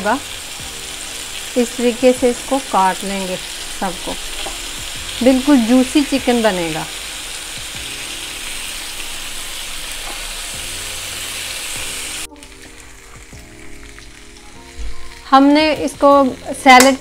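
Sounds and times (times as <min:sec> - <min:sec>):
faint soft background music: 0:00.0 - 0:17.0
meat sizzling on a grill: 0:00.0 - 0:17.0.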